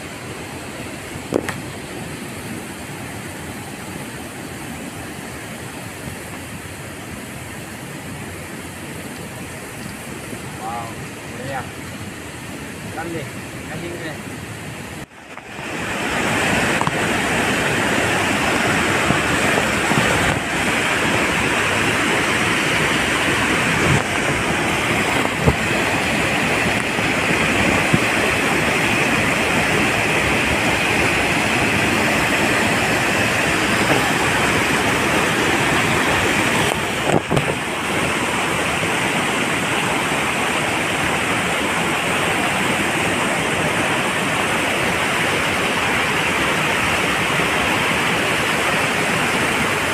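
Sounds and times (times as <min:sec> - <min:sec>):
waterfall rushing over rock: 0:00.0 - 0:49.9.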